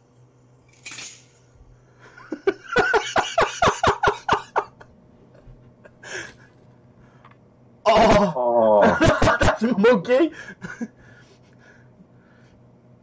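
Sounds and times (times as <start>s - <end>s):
men laughing hard: 2.1s - 6.5s, 8.7s - 9.6s, 10.4s - 11.0s.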